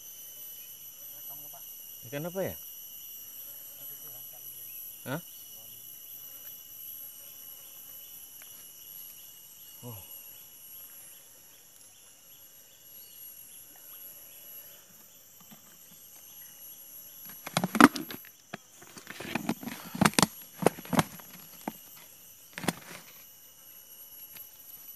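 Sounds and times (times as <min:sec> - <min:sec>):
high-pitched insect chirring: 0:00.0 - 0:11.2
handling knocks and rustles: 0:17.3 - 0:23.2.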